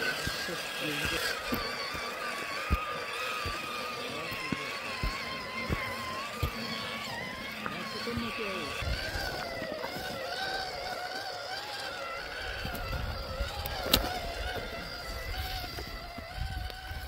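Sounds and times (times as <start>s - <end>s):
electric motor and gearbox whining: 0.0s - 17.0s.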